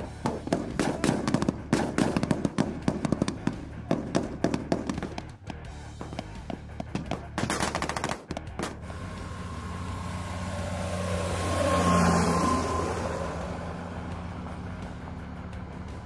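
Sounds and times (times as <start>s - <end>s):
rifle shots: 0.2s - 5.0s, 7.2s - 8.8s
armored vehicle driving past: 8.4s - 16.0s.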